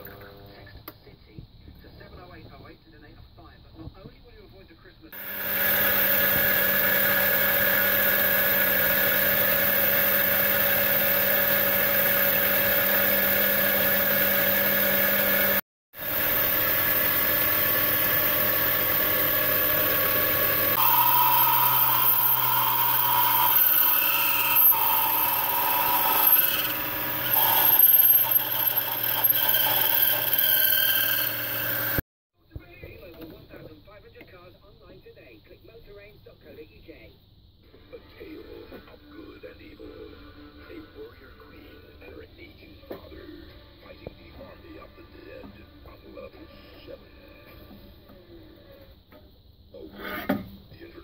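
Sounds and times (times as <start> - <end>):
drill cutting metal: 5.2 - 32.0
metal lathe whine: 5.2 - 32.0.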